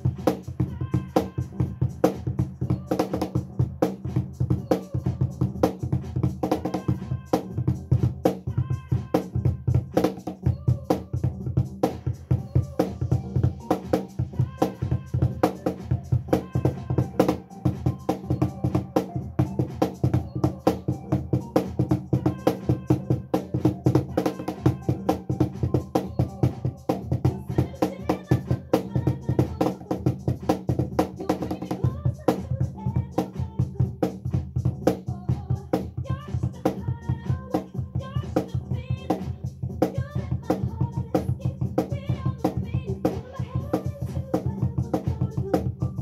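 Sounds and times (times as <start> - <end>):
recorded dance-pop song: 0.0 - 46.0
woman singing: 0.0 - 46.0
cajon played by hand: 13.2 - 36.8.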